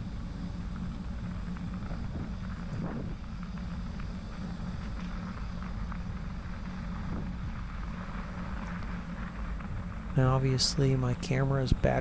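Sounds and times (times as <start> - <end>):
bicycle tyres rumbling on trail: 0.0 - 12.0
faint ticks of grit: 0.0 - 12.0
wind on microphone: 2.0 - 3.2.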